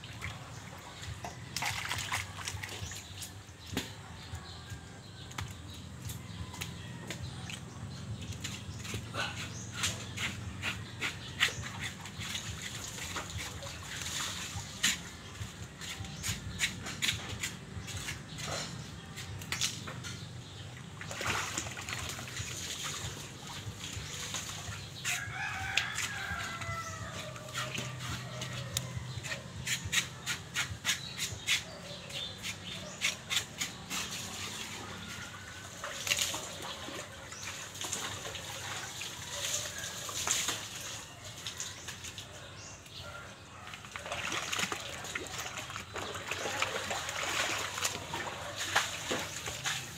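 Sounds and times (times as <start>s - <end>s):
rooster crowing: 25.0s - 29.4s.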